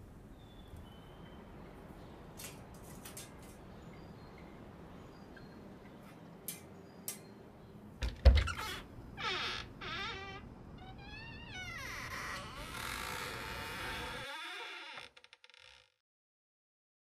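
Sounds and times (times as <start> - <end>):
heavy door thud: 8.0 - 8.7
door hinges creaking: 8.0 - 16.0.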